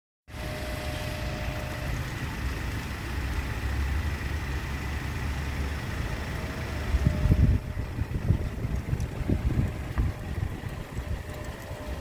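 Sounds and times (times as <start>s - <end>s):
faint high steady tone: 0.4s - 2.0s
low outdoor rumble: 0.4s - 12.0s.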